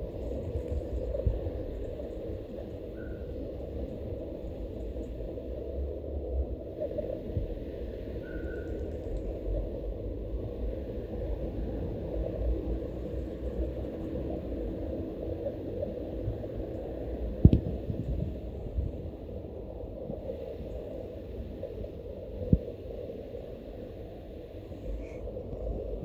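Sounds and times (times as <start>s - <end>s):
faint hum: 0.0s - 26.0s
low outdoor rumble: 0.0s - 26.0s.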